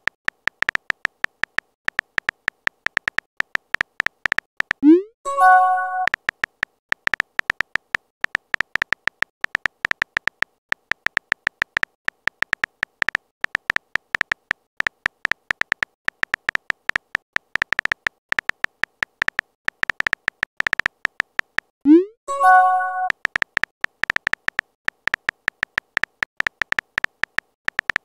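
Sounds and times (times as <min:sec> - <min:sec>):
phone keyboard clicks: 0:00.0 - 0:21.8, 0:22.5 - 0:28.0
short message sent chime: 0:05.3 - 0:06.1, 0:22.3 - 0:23.1.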